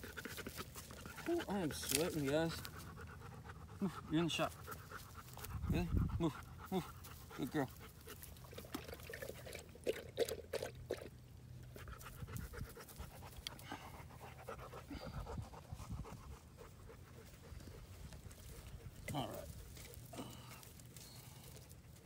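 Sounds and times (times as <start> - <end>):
dog panting: 0.0 - 8.6, 11.7 - 20.0.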